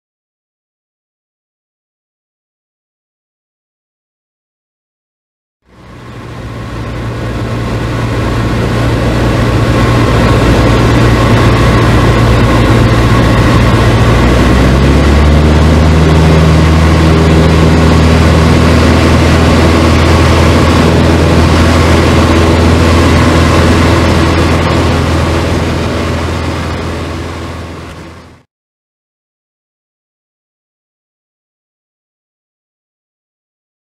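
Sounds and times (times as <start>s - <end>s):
light aircraft engine and propeller: 5.6s - 28.5s.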